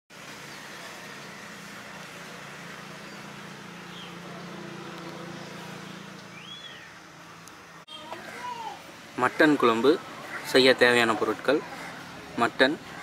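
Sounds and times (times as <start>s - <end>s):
short bird chirps: 6.3s - 7.0s.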